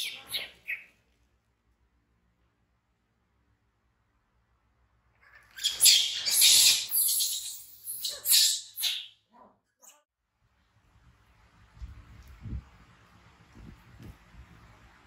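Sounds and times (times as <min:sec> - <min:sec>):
baby monkey screaming: 0:00.0 - 0:00.9, 0:05.2 - 0:09.2.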